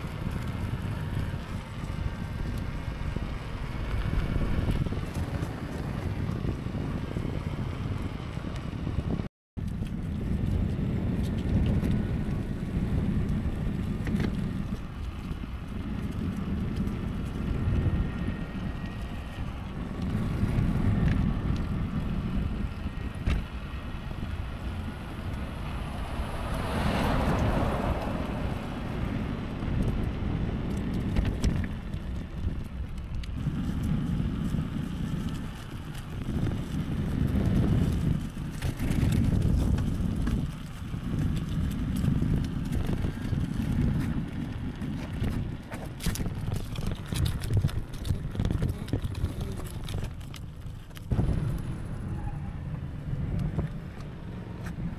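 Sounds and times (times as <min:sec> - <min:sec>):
suspension clicks and rattles: 0:00.0 - 0:54.9
tyres rolling on asphalt: 0:00.0 - 0:54.9
wind buffeting a microphone: 0:00.0 - 0:54.9.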